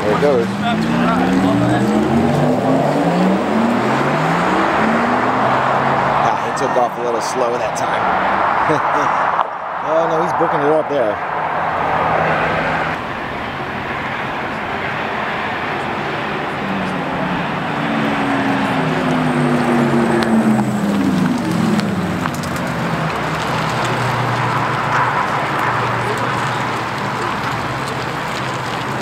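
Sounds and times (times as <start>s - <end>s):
outdoor background noise: 0.0s - 29.0s
electric car pitched hum passing: 9.3s - 29.0s.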